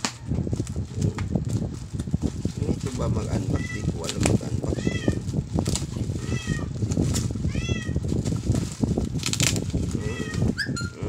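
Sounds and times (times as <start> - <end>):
plastic pouch crinkling: 0.5 - 10.7
cat meowing: 4.7 - 5.2, 6.0 - 6.7, 7.5 - 8.0, 10.0 - 11.0.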